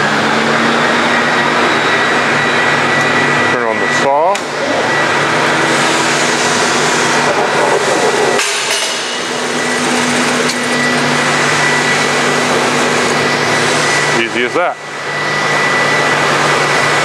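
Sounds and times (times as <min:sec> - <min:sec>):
dust vacuum running: 0:00.0 - 0:17.0
bandsaw cutting foam: 0:05.5 - 0:08.7.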